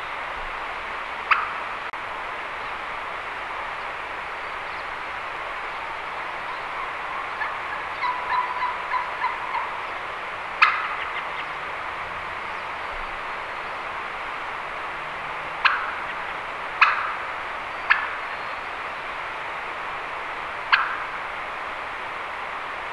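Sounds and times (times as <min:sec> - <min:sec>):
short sharp turkey calls: 0:01.3 - 0:01.6, 0:06.8 - 0:09.8, 0:10.6 - 0:11.6, 0:15.6 - 0:17.2, 0:20.7 - 0:21.1
turkey yelping: 0:06.8 - 0:09.8, 0:10.6 - 0:11.6, 0:15.6 - 0:16.2, 0:16.8 - 0:17.2.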